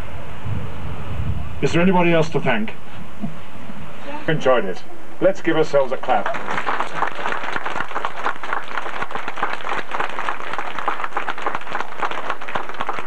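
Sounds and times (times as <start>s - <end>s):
crowd applauding: 6.0s - 13.0s.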